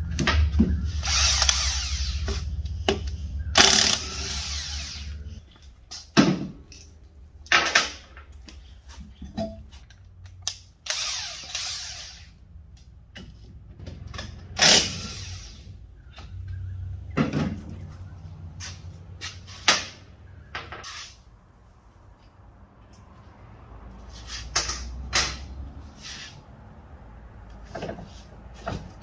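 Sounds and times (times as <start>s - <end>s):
impact wrench bursts: 0.8s - 2.5s, 3.5s - 5.4s, 10.8s - 12.4s, 14.5s - 15.8s
metal clanks of tools: 9.2s - 10.0s.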